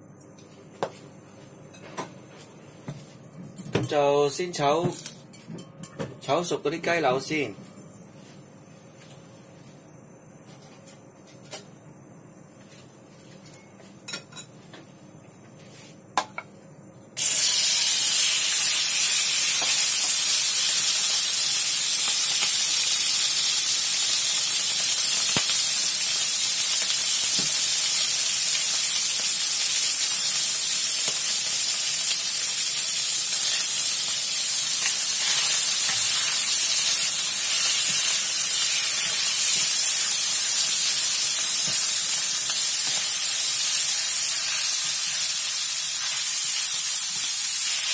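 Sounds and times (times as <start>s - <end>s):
chicken sizzling in hot oil: 17.2s - 47.9s.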